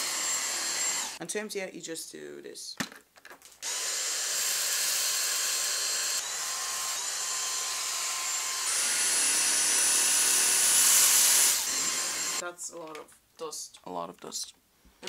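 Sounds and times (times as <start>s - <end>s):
vacuum cleaner whining: 0.0s - 1.2s, 3.6s - 12.4s.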